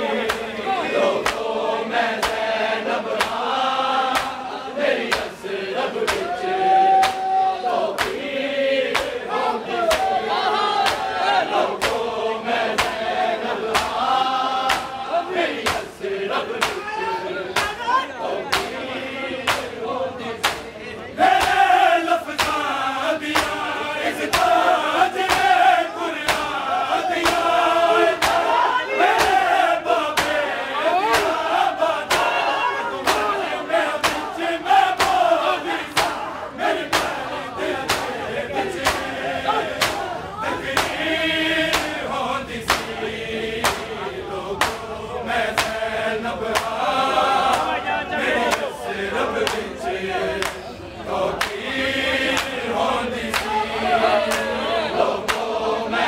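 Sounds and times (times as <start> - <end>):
men chanting in unison: 0.0 - 56.0
chest-beating slaps: 0.2 - 0.5, 1.2 - 1.5, 2.2 - 3.5, 4.1 - 4.4, 5.1 - 5.3, 6.0 - 6.3, 7.0 - 7.3, 8.0 - 8.2, 8.9 - 9.2, 10.8 - 11.1, 11.8 - 12.1, 12.7 - 13.1, 13.7 - 15.0, 15.6 - 16.0, 16.6 - 16.9, 17.5 - 17.8, 18.5 - 18.8, 19.4 - 19.8, 20.4 - 28.5, 29.1 - 32.4, 33.0 - 41.1, 41.7 - 42.0, 42.6 - 43.0, 43.6 - 44.0, 44.6 - 44.9, 45.6 - 45.8, 46.5 - 46.8, 47.5 - 47.8, 49.4 - 49.7, 50.4 - 50.6, 51.3 - 51.6, 52.3 - 52.6, 53.3 - 53.6, 55.2 - 55.6.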